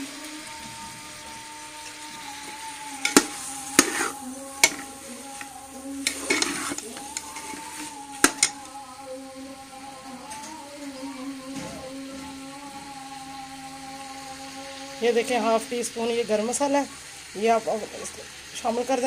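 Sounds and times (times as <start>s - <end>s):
metal spatula scraping pot: 1.6s - 8.7s.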